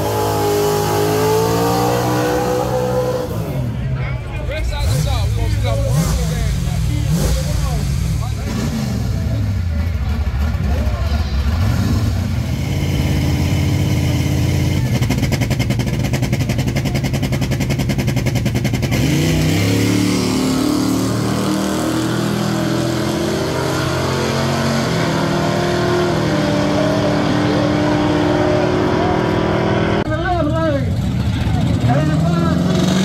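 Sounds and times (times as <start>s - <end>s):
race cars accelerating: 0.0s - 30.2s, 30.8s - 33.0s
race car engines revving: 0.0s - 33.0s.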